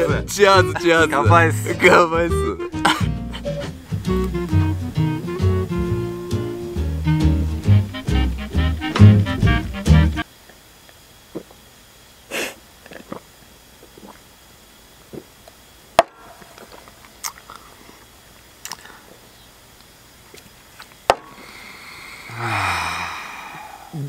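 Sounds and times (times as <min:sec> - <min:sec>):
people swallowing and breathing: 0:16.6 - 0:19.3, 0:20.8 - 0:24.0
breathy exhale with low voice: 0:21.3 - 0:24.0.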